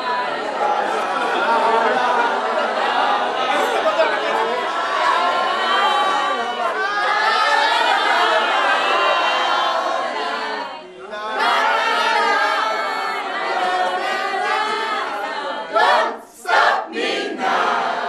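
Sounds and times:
group singing unaccompanied: 0:05.8 - 0:18.0.

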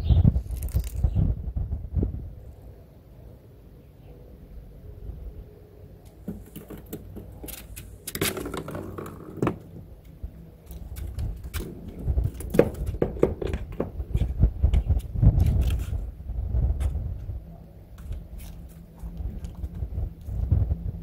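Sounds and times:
low wind rumble on microphone: 0:00.0 - 0:03.7, 0:04.3 - 0:06.0, 0:09.7 - 0:21.0.

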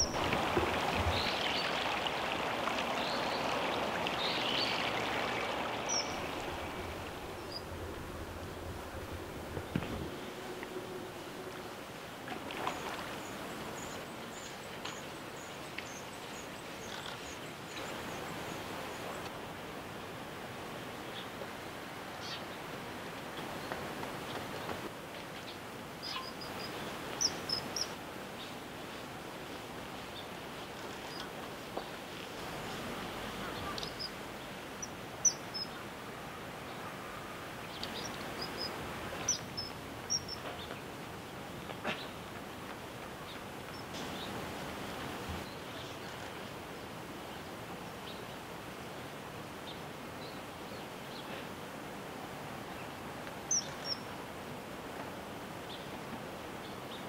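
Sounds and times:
kingfishers calling: 0:00.0 - 0:11.5
river water running: 0:00.0 - 0:57.0.

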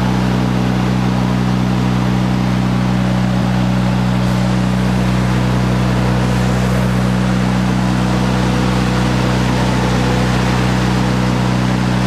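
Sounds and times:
welder-generator engine drone: 0:00.0 - 0:12.0.

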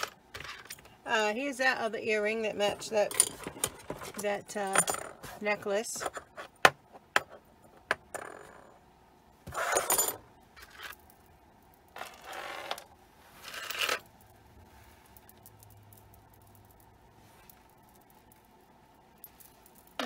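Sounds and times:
earrings jingling and rustling: 0:02.0 - 0:06.4, 0:09.6 - 0:12.5, 0:19.2 - 0:20.0.

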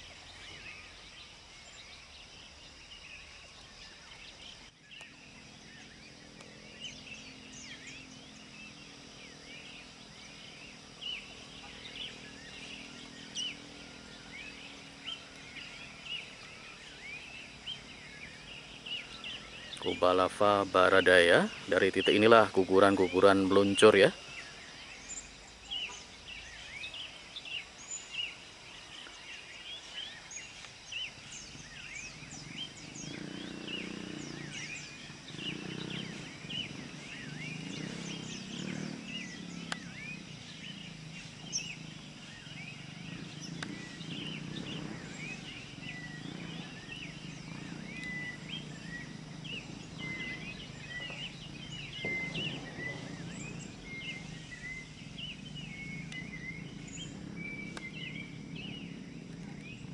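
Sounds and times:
birds chirping: 0:00.0 - 0:59.9
low rumble: 0:39.7 - 0:59.9.

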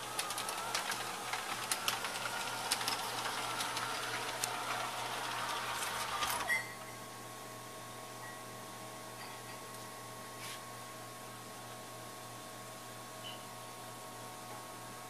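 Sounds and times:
wheels clicking on rails: 0:00.0 - 0:06.5
model train motor whine: 0:00.0 - 0:06.8.

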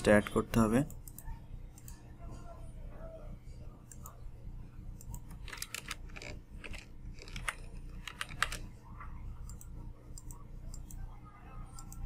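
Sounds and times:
steady low hum: 0:00.0 - 0:12.0
computer keyboard keystrokes: 0:05.0 - 0:08.7.

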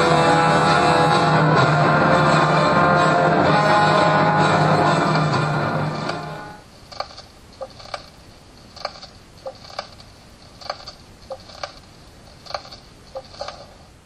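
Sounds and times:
mechanical ticking clicks: 0:06.9 - 0:13.8.

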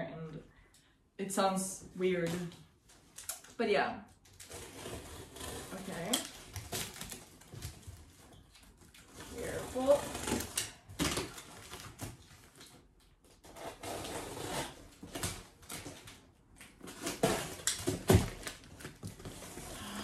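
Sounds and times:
blade cutting cardboard tape: 0:04.4 - 0:07.2, 0:13.4 - 0:16.1, 0:16.8 - 0:18.5.

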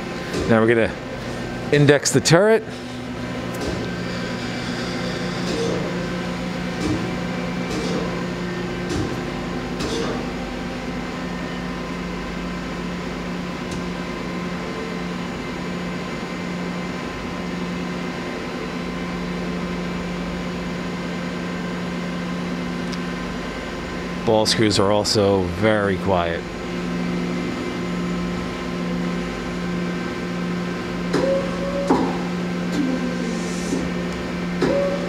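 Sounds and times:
machine hum: 0:00.0 - 0:35.0
lathe turret clunks: 0:06.7 - 0:08.2, 0:08.8 - 0:10.3.

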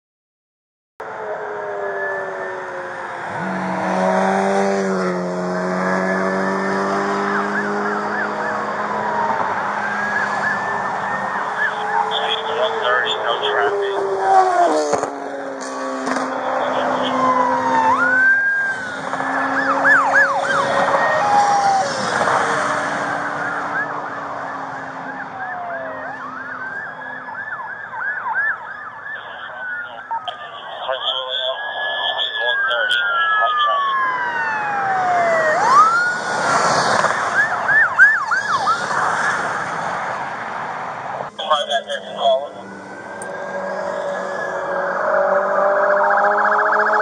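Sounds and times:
police siren: 0:01.0 - 0:47.0
traffic noise: 0:01.0 - 0:47.0
steady rush of noise: 0:11.5 - 0:14.0, 0:29.2 - 0:33.8, 0:41.3 - 0:42.5.

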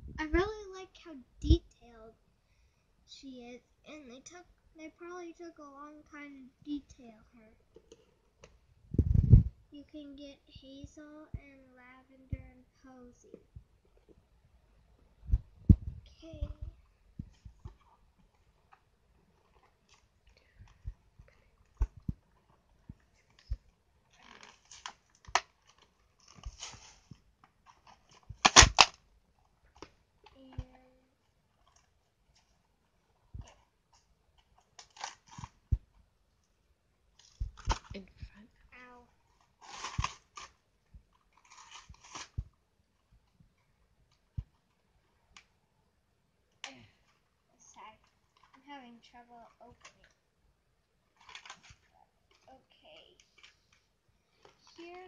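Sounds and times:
plastic crinkling: 0:16.3 - 0:29.0, 0:29.7 - 0:36.0, 0:38.8 - 0:42.5, 0:51.1 - 0:55.0
loud plastic crackle: 0:19.4 - 0:29.0, 0:33.4 - 0:35.9, 0:37.2 - 0:38.0, 0:39.2 - 0:42.6, 0:51.1 - 0:52.5.

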